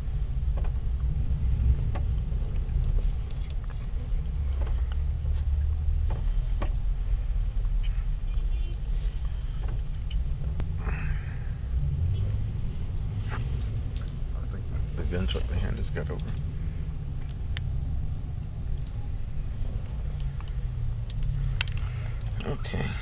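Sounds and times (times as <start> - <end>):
car engine rumble: 0.0 - 23.0
road noise: 0.0 - 23.0
faint clicks: 19.8 - 22.5.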